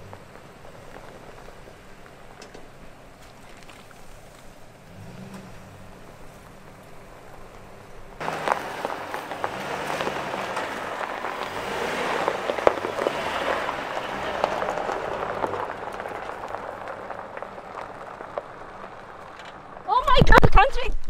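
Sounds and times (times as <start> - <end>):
tyres crunching over gravel: 0.0 - 20.8
truck engine low note: 4.8 - 19.8.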